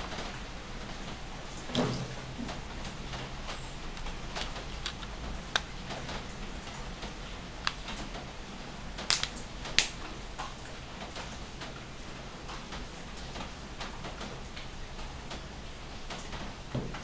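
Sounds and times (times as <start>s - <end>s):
plastic phone cover clips snapping: 4.0s - 5.7s, 7.6s - 7.8s, 9.0s - 10.0s.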